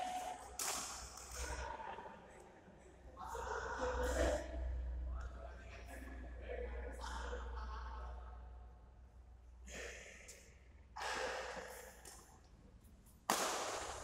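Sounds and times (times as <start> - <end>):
racquets hitting shuttlecock: 0.0 - 1.5, 13.1 - 14.0.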